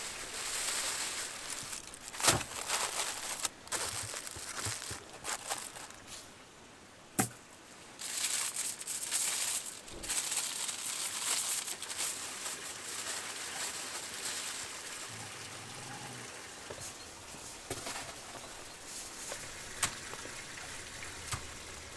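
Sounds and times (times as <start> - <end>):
aluminium foil crinkling: 0.0 - 6.3, 8.0 - 15.1.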